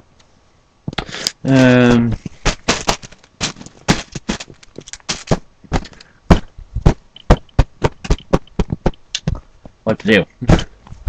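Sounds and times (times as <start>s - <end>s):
handling noise clicks and knocks: 2.2s - 9.8s.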